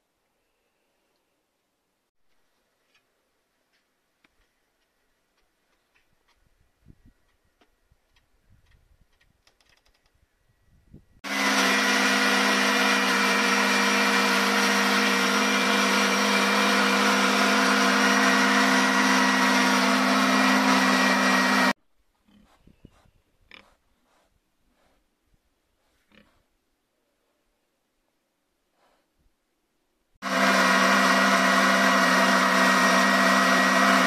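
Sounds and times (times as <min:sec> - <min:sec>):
electric grain crusher humming: 0:11.2 - 0:21.8, 0:30.2 - 0:34.0.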